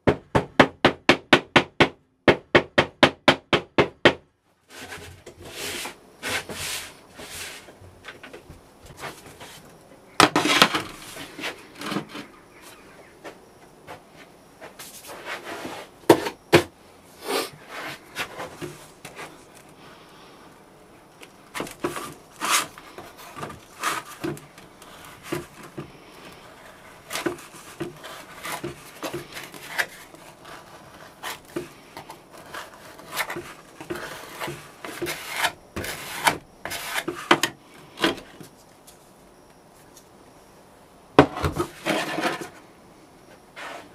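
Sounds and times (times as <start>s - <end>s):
plastic scraper scraping sand: 4.7s - 7.8s, 8.9s - 12.3s, 14.8s - 16.4s, 17.2s - 19.5s, 21.5s - 38.3s, 41.3s - 42.6s.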